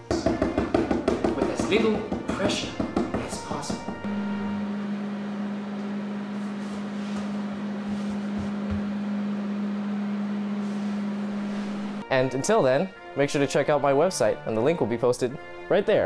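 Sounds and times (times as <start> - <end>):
microwave fan noise: 3.8 - 12.0
microwave oven humming: 4.0 - 12.0.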